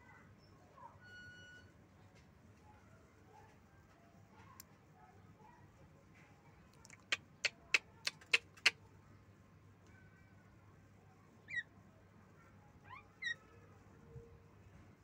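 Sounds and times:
bird sharp clicks: 0:06.8 - 0:08.8
bird squeaky chirps: 0:11.4 - 0:11.7, 0:12.9 - 0:13.5.

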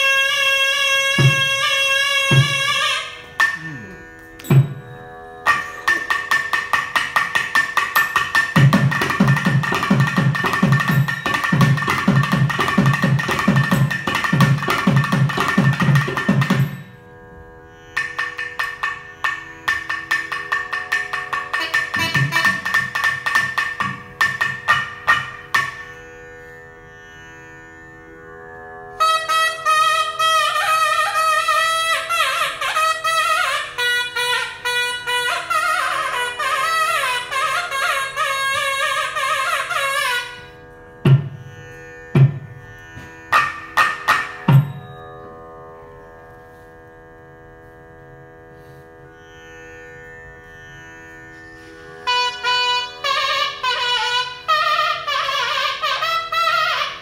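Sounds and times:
reed pipe melody: 0:00.0 - 0:06.6, 0:21.5 - 0:23.0, 0:29.0 - 0:41.0, 0:51.4 - 0:57.0
drum strokes: 0:01.1 - 0:03.8, 0:04.4 - 0:16.9.

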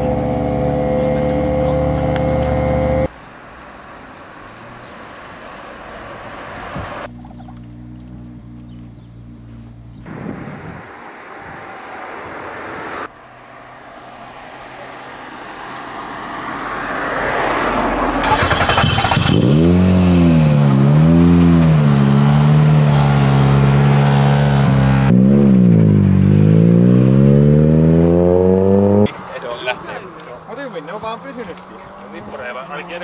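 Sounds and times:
rally car engine revving: 0:00.0 - 0:03.1, 0:18.2 - 0:29.1.

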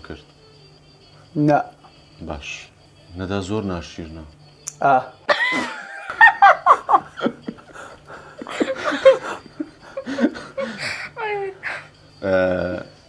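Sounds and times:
people laughing: 0:05.3 - 0:11.8.

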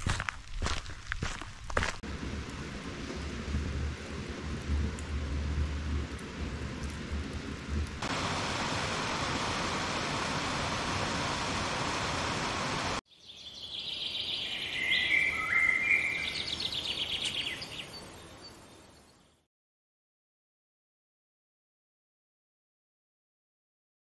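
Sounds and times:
steady rushing hiss: 0:02.0 - 0:13.0
high bird-like chirps and trills: 0:13.1 - 0:19.2.

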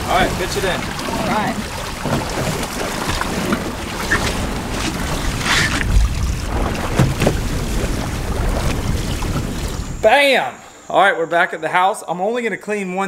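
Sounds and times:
wind buffeting microphone: 0:00.0 - 0:10.1
choppy sea washing: 0:00.0 - 0:10.5.

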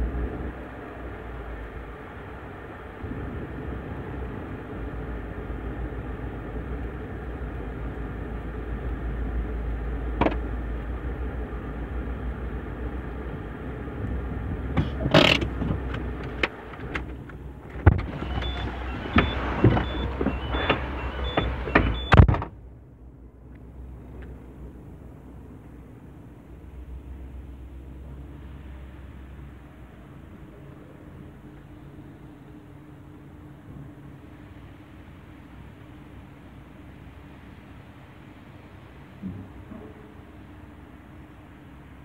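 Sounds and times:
car engine idling: 0:00.0 - 0:42.0
loud clicks and knocks: 0:10.2 - 0:10.5, 0:14.8 - 0:22.6
high repeating beep: 0:18.4 - 0:22.2.

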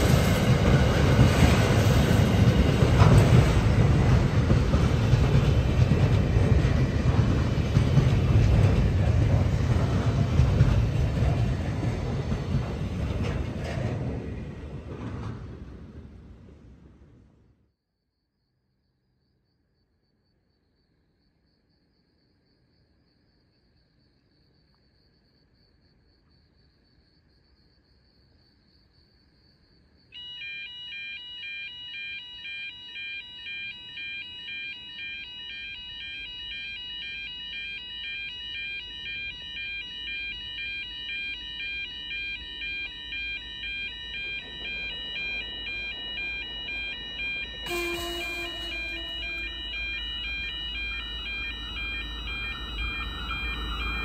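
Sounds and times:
train rumble: 0:00.0 - 0:17.5, 0:37.6 - 0:54.0
faint crickets: 0:17.8 - 0:54.0
level crossing bells ringing: 0:30.2 - 0:54.0
train horn blast: 0:47.6 - 0:50.9.

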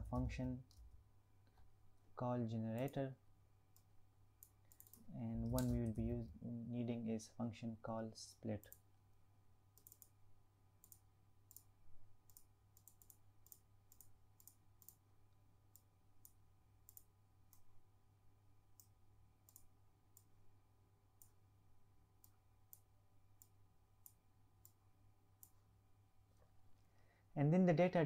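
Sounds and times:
low steady hum: 0:00.0 - 0:28.0
faint computer mouse clicks: 0:03.8 - 0:05.8, 0:09.8 - 0:10.2, 0:12.3 - 0:15.0, 0:15.7 - 0:17.7, 0:18.8 - 0:20.3.

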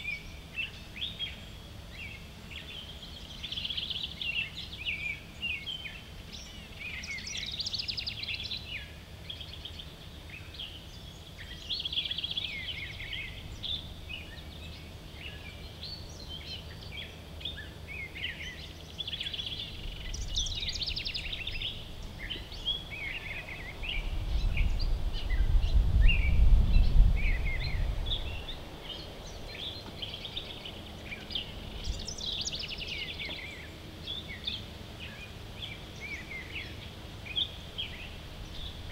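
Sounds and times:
songbirds chirping: 0:00.0 - 0:38.9
low rumble: 0:23.5 - 0:29.7.

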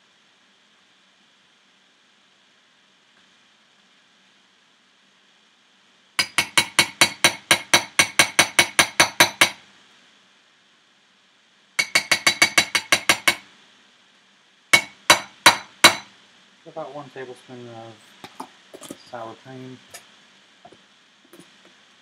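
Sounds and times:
metal spoon tapping ceramic bowl: 0:11.8 - 0:13.4.

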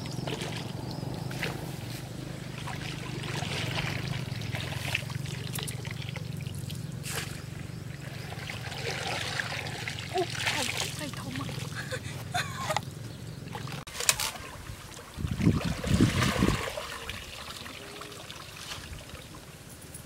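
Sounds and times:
steady low hum: 0:00.0 - 0:15.7
water trickling and dripping: 0:02.5 - 0:06.8.

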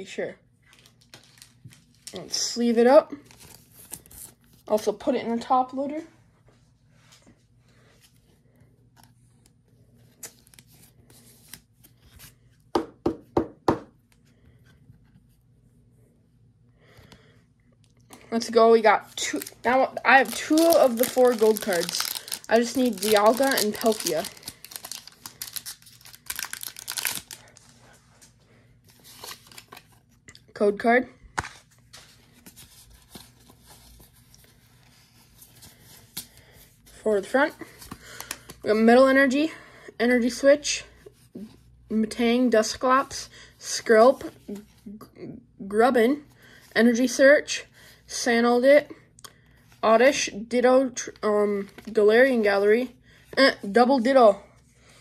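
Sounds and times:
plastic sleeve rustling: 0:00.6 - 0:02.6, 0:18.5 - 0:30.2.

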